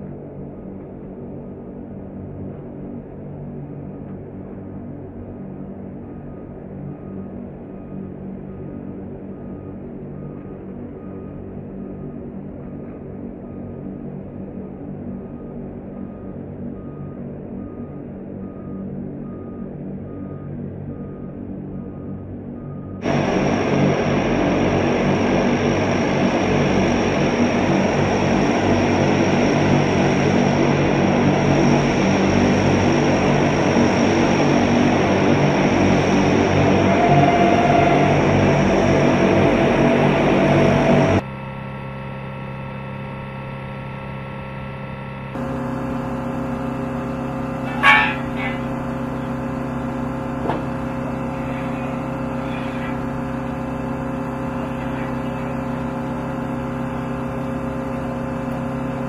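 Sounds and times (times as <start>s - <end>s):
high turbine whine: 0.0s - 59.0s
propeller drone: 0.0s - 59.0s
high-pitched squeal: 23.0s - 41.2s, 45.4s - 59.0s.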